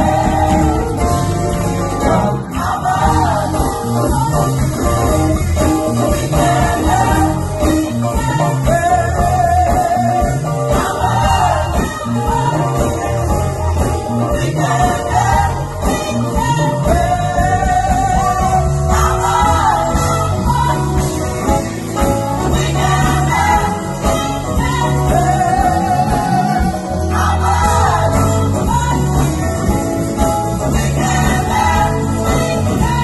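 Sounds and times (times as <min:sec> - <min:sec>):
gospel choir singing: 0:00.0 - 0:33.0
live band accompaniment: 0:00.0 - 0:33.0.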